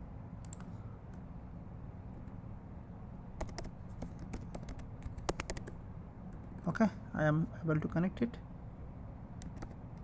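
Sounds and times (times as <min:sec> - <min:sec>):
low steady hum: 0:00.0 - 0:10.0
keyboard keys clicking: 0:03.4 - 0:05.8, 0:09.4 - 0:09.8.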